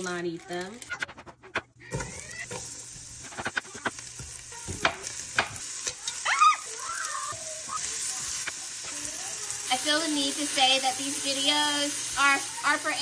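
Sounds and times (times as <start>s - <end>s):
spatula stirring: 0.0s - 9.8s
onion sizzling in oil: 0.0s - 13.0s.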